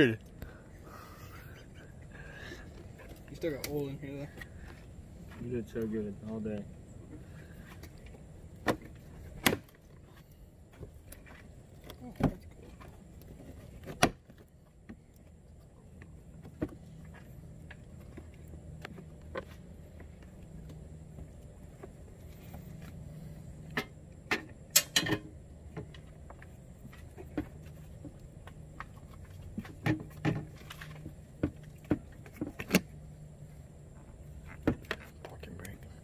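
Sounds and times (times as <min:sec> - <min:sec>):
steady low hum: 0:00.0 - 0:36.0
parts clicking and rattling: 0:23.6 - 0:32.9.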